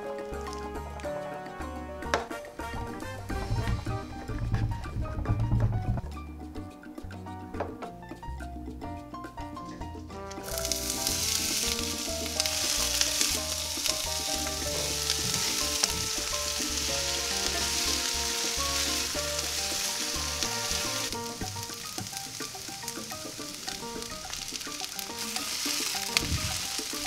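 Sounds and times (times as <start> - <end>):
onion sizzling in hot oil: 10.4 - 27.0.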